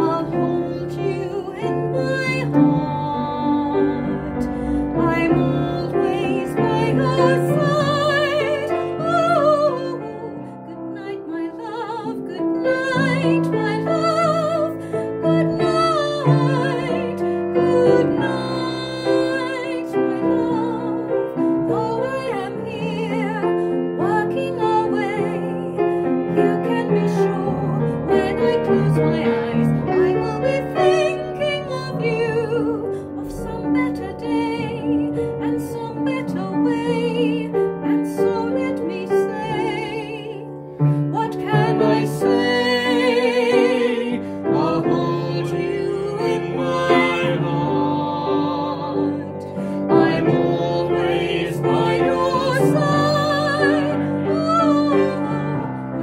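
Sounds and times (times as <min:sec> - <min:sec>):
woman singing with vibrato: 0:00.0 - 0:55.7
upright piano: 0:00.0 - 0:56.0.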